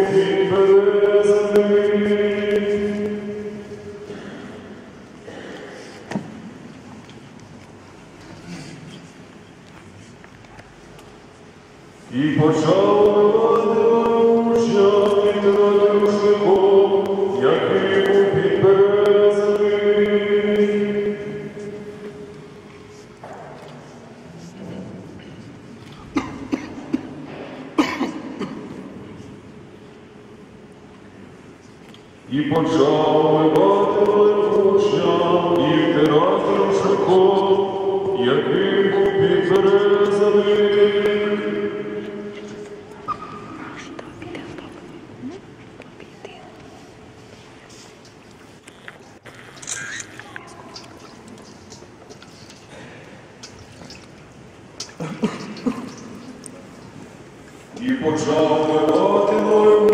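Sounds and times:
choir chanting a hymn: 0.0s - 4.6s, 12.1s - 22.4s, 32.3s - 42.8s, 57.8s - 59.9s.

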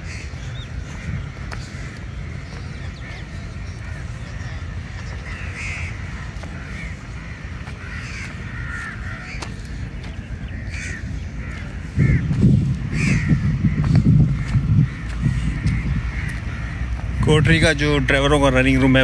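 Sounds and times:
crows cawing: 0.0s - 19.0s
low rumbling noise: 0.0s - 19.0s.

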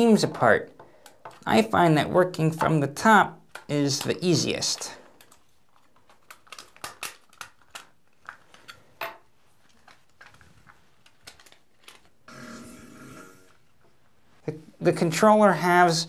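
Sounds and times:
rubbing and handling noise: 3.4s - 15.3s
plastic clips snapping: 3.5s - 8.7s.

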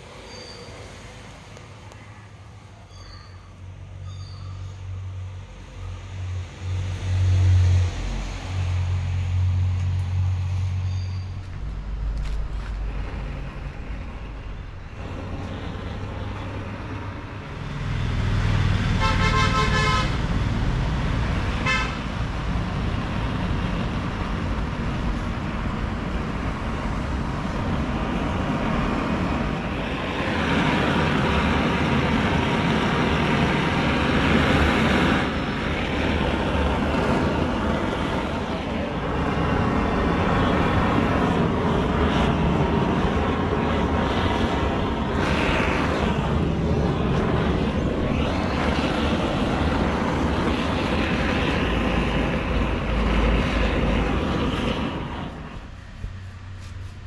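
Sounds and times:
blowtorch flame hissing: 12.9s - 57.0s.

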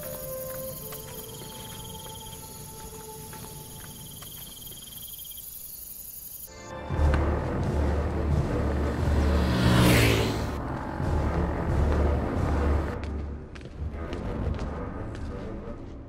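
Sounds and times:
insects chirring: 0.0s - 6.6s
thin high insect trill: 0.0s - 6.6s.

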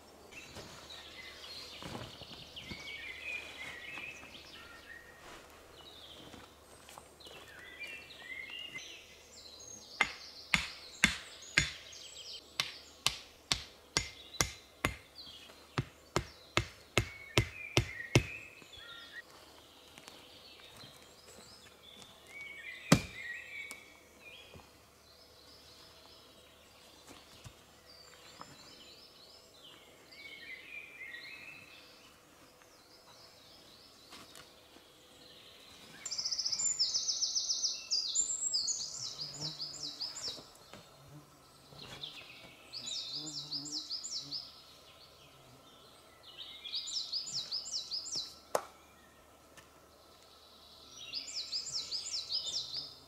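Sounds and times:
birds chirping: 0.0s - 53.0s.

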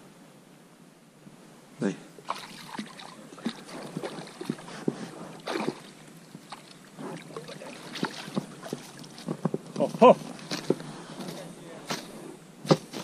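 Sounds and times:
fish thrashing and splashing: 2.3s - 4.7s, 5.4s - 9.2s.

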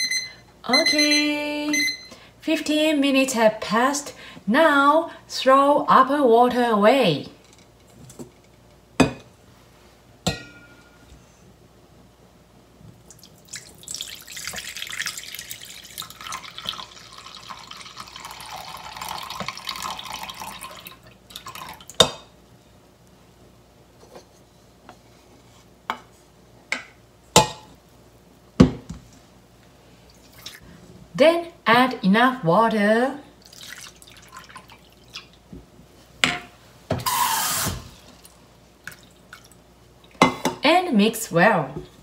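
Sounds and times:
metal bowls knocking and clinking: 10.3s - 10.9s
water pouring between metal bowls: 13.1s - 21.9s, 33.4s - 35.2s.

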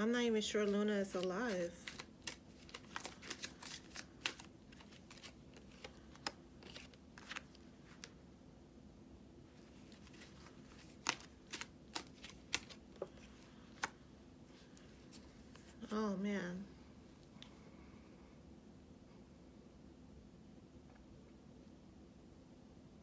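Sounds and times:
faint steady hum: 0.0s - 23.0s
cards being shuffled: 0.6s - 8.2s, 9.6s - 14.0s.

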